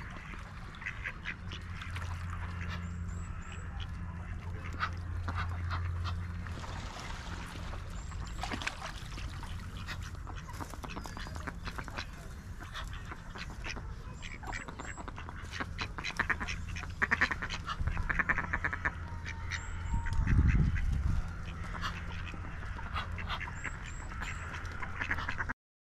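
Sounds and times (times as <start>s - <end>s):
low rumble: 0.0s - 25.0s
ducks quacking: 0.0s - 25.6s
small birds chirping: 7.6s - 25.4s.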